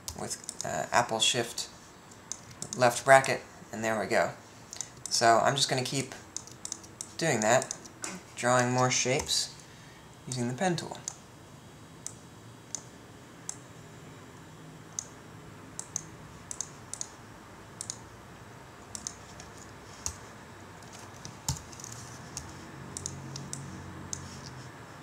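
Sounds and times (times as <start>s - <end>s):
mouse and keyboard clicks: 2.1s - 2.8s, 6.4s - 8.0s, 17.8s - 18.0s, 18.9s - 20.2s, 20.8s - 24.6s.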